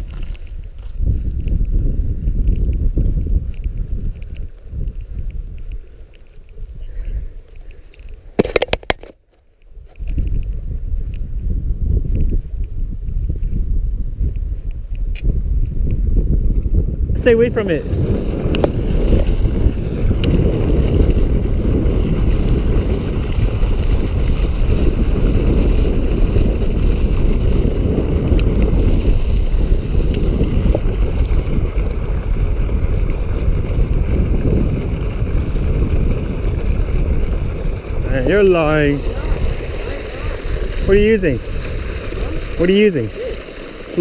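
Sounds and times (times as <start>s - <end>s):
wind buffeting microphone: 0.0s - 9.0s, 9.7s - 44.0s
water churning: 17.8s - 44.0s.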